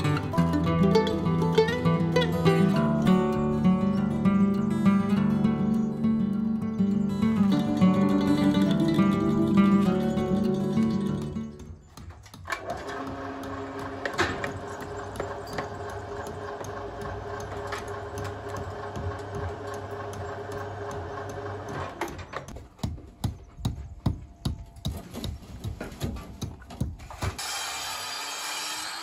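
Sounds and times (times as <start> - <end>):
motor humming and rattling: 7.7 - 22.6.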